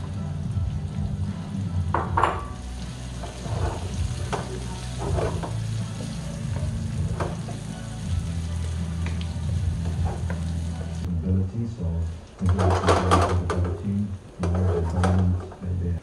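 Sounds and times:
onions sizzling in oil: 2.3s - 11.1s
wooden spoon scraping wok: 3.1s - 6.2s, 14.4s - 15.7s.

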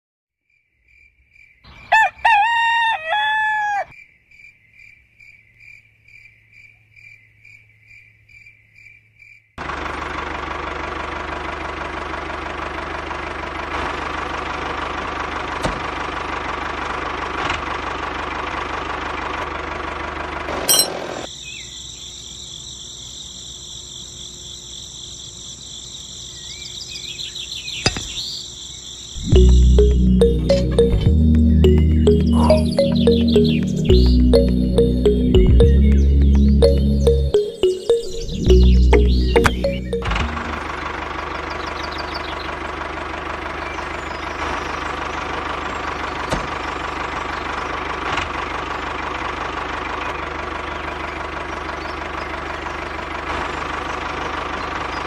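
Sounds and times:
rooster crowing: 1.7s - 4.0s
faint high chirping: 25.5s - 40.8s
high-pitched tones: 29.2s - 40.8s.

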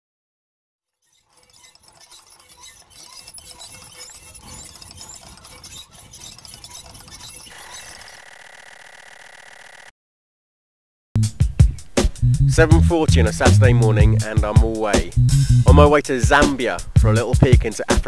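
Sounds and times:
glitchy crackling noise: 1.1s - 9.9s.

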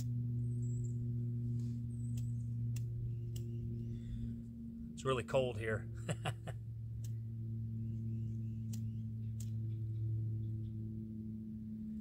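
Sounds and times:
steady low hum: 0.0s - 12.0s
faint sharp clicks: 2.1s - 3.5s, 8.7s - 9.6s.

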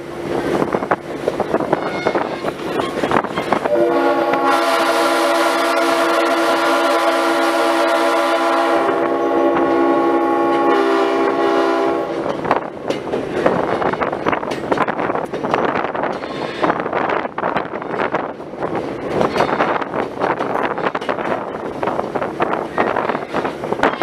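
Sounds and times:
moving train rumble: 0.0s - 24.0s
wind: 0.0s - 24.0s
locomotive air horn blast: 3.6s - 12.3s.

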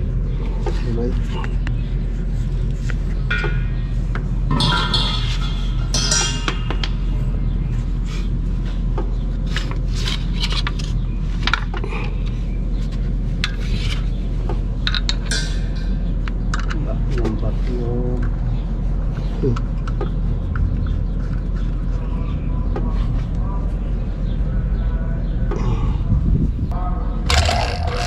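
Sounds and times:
metal fittings clinking and scraping: 4.5s - 6.7s.

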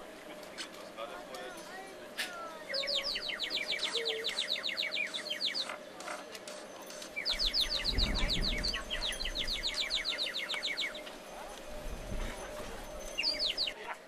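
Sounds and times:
songbird trilling: 2.6s - 5.8s, 7.1s - 11.1s, 13.0s - 13.8s.

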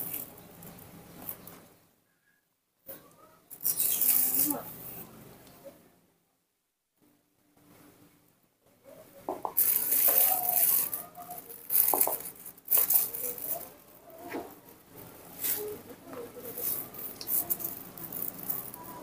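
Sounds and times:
plastic bag crinkling: 9.4s - 14.2s, 14.9s - 19.0s.

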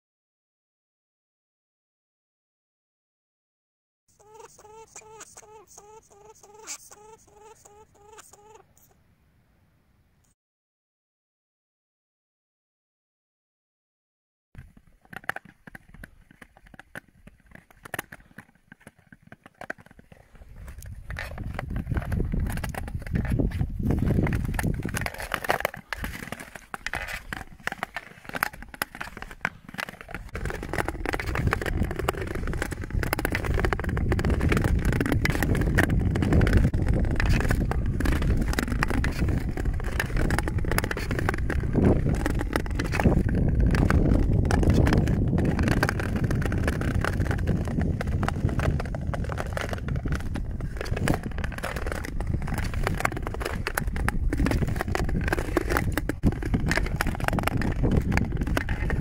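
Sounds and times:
ice skates scraping on ice: 14.6s - 59.0s.

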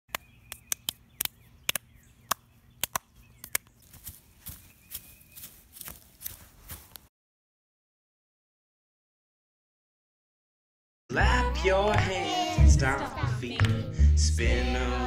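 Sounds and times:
bare feet stomping on grass: 2.3s - 7.1s
children clapping: 13.6s - 13.8s.

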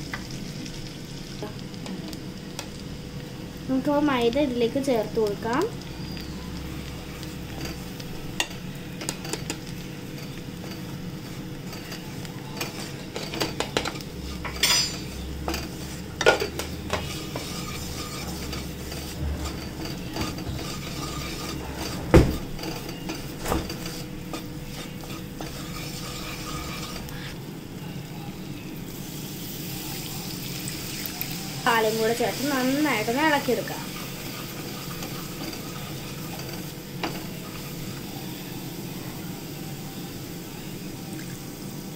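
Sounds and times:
steady sizzle: 0.0s - 41.9s
spatula scraping pan: 6.0s - 27.4s, 31.7s - 38.6s.

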